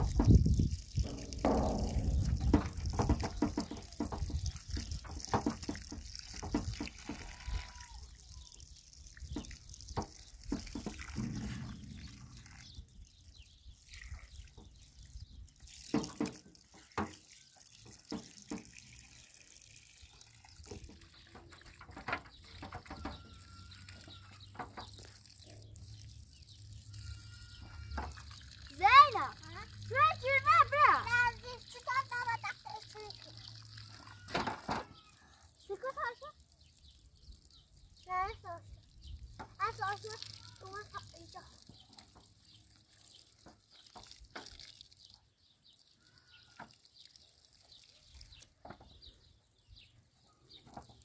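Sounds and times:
splashes and wet knocks: 0:00.0 - 0:45.8
tap water running onto cloth: 0:00.0 - 0:49.2, 0:50.6 - 0:51.0.

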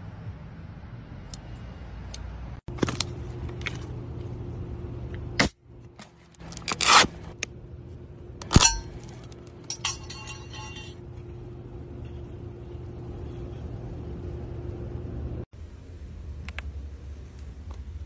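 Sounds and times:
light metallic rattling: 0:08.5 - 0:11.0.

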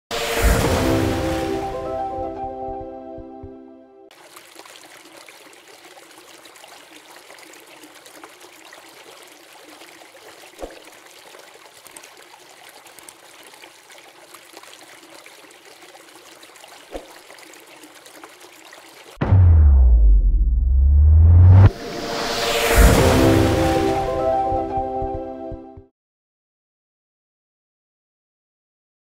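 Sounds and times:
brief splashes or knocks: 0:00.2 - 0:02.0, 0:10.5 - 0:11.0, 0:16.8 - 0:17.4, 0:19.2 - 0:20.4, 0:21.4 - 0:24.4
fountain water trickling into basin: 0:04.1 - 0:19.2.

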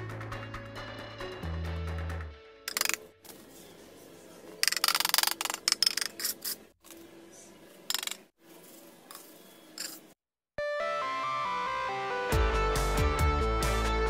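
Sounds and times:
bricks set into mortar: 0:02.7 - 0:03.1
knife scraping mortar and bricks: 0:04.6 - 0:06.7, 0:07.9 - 0:10.2.

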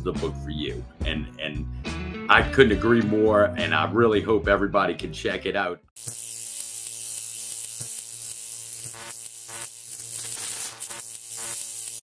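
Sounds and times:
electric buzz with hiss: 0:06.0 - 0:12.0.

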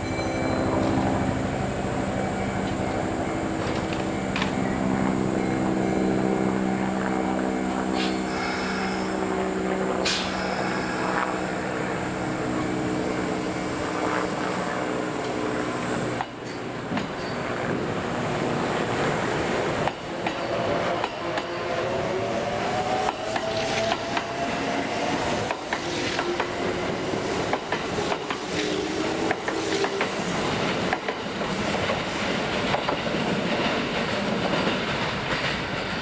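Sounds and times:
electric train humming: 0:00.0 - 0:36.0
train cars rolling past: 0:00.0 - 0:36.0
train clunk: 0:03.6 - 0:04.7
air hissing: 0:08.0 - 0:09.3, 0:10.0 - 0:11.7.

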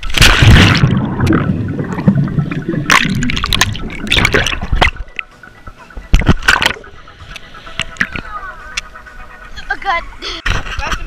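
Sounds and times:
underwater bubbles gurgling: 0:00.0 - 0:05.3
water splashing against camera: 0:00.0 - 0:05.3, 0:06.0 - 0:08.9.

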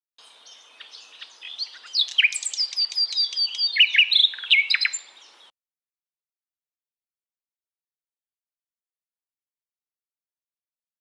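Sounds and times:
nestlings begging chirps: 0:00.4 - 0:05.5.

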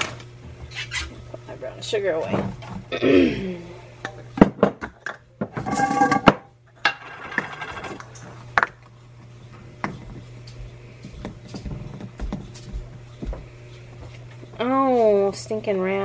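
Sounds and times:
steady low hum: 0:00.0 - 0:16.0
dishes and utensils clattering: 0:05.4 - 0:08.3.

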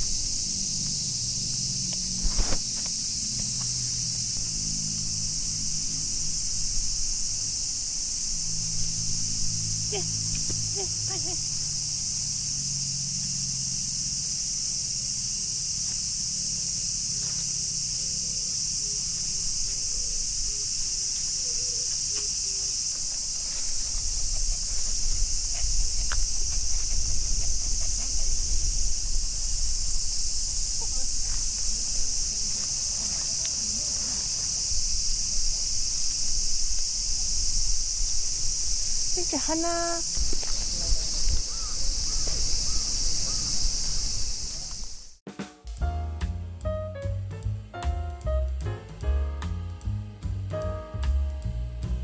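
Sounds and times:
cicadas buzzing: 0:00.0 - 0:45.3
wind buffeting microphone: 0:23.2 - 0:45.1.

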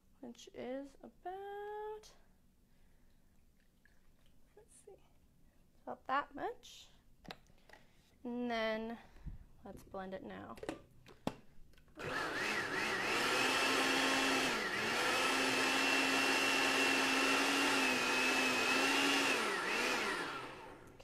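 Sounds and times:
blender motor whine: 0:12.0 - 0:21.0.

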